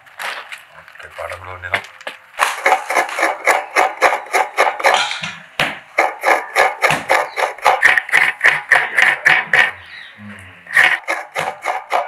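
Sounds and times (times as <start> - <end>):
coconut scraped on metal grater: 10.7 - 12.0.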